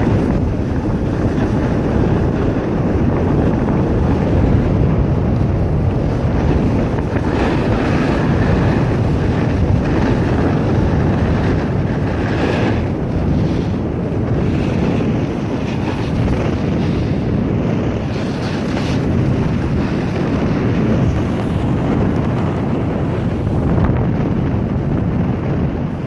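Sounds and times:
skis sliding on snow: 0.0s - 26.0s
wind buffeting microphone: 0.0s - 26.0s.

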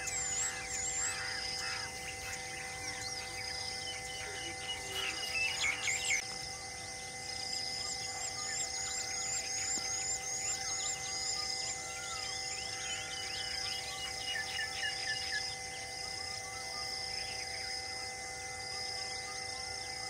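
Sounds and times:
birds chirping and calling: 0.0s - 6.4s, 7.2s - 16.3s
steady hum: 0.0s - 20.0s.

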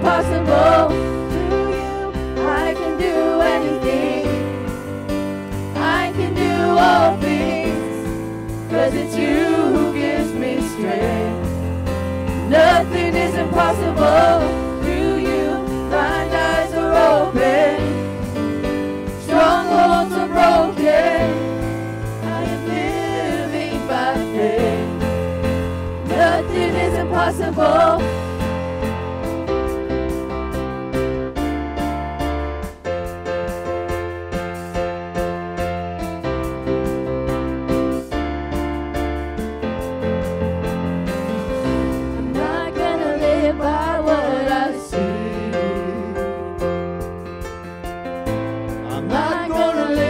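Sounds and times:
vocal group singing in harmony: 0.0s - 4.8s, 5.6s - 28.4s, 41.7s - 46.8s, 48.8s - 50.0s
instrumental accompaniment: 0.0s - 50.0s.

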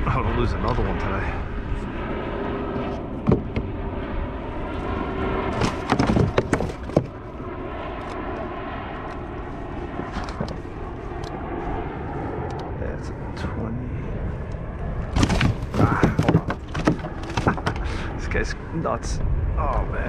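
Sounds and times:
wind rumble on microphone: 0.0s - 20.0s
knocks: 3.2s - 3.7s, 5.5s - 7.2s, 15.2s - 17.8s.

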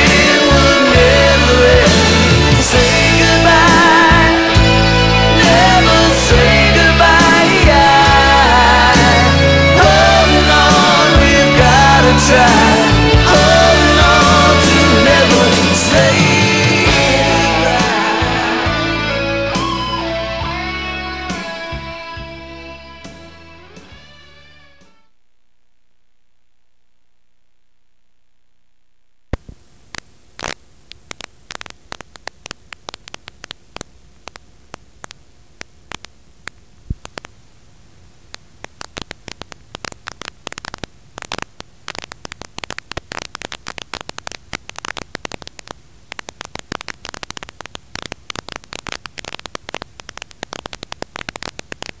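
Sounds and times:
static hiss: 0.0s - 22.4s, 23.0s - 52.0s
crackling clicks: 27.9s - 52.0s.

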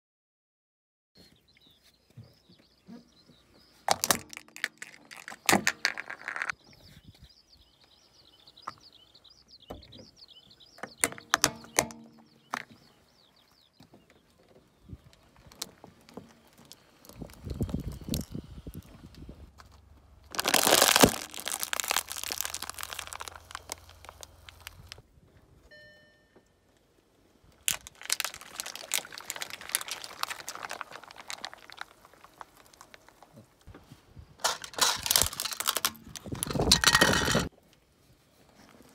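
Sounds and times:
birds chirping faintly: 1.2s - 19.4s
low car rumble: 16.4s - 20.4s
tyre crushing objects: 20.3s - 25.0s.

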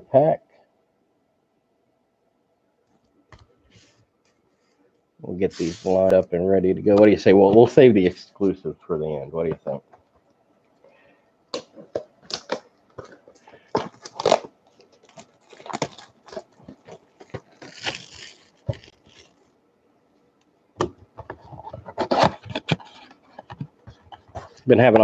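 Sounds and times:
card packs crinkling: 11.5s - 19.5s
packaging rustle: 11.5s - 19.5s.

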